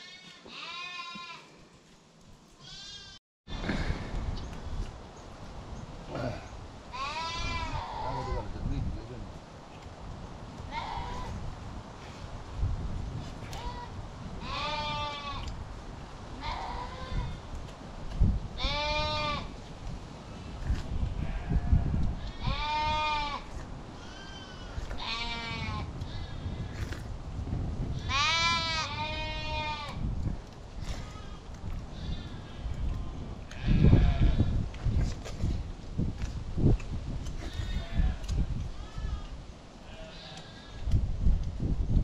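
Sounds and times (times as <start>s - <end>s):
sheep bleating: 0.0s - 1.5s, 13.5s - 15.5s, 18.6s - 19.5s, 21.2s - 25.9s, 37.5s - 40.7s.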